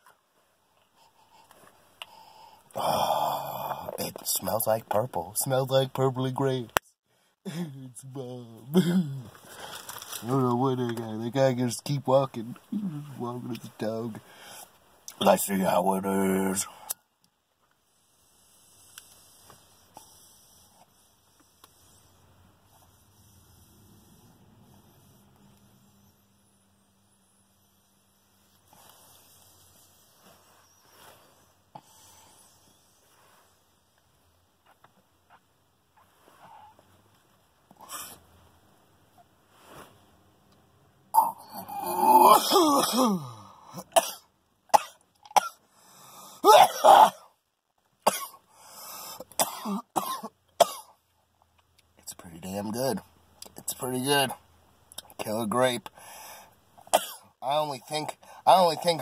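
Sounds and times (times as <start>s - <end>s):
man exhaling: 2.6s - 4.0s
man coughing: 8.7s - 9.4s, 41.2s - 44.2s, 46.4s - 47.3s, 48.1s - 48.4s, 49.3s - 50.9s, 57.0s - 57.3s.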